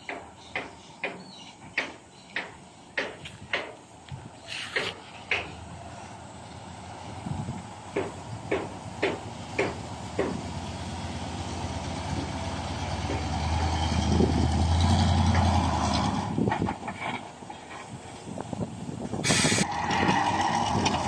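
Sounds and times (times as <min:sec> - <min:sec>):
diesel truck engine reversing: 0:05.9 - 0:16.4, 0:19.2 - 0:21.0.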